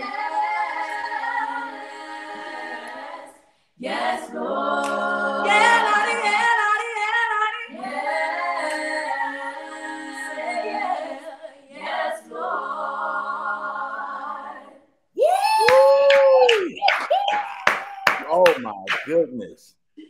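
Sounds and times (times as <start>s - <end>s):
group singing a cappella: 0.0s - 15.1s.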